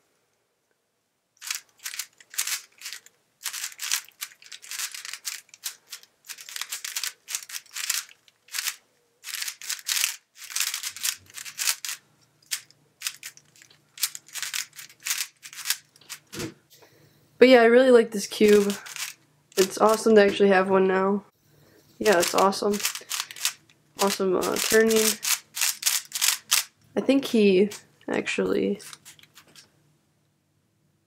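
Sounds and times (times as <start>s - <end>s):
puzzle cube plastic clicks: 1.4s - 16.4s, 18.4s - 20.1s, 22.0s - 26.7s, 28.8s - 29.7s.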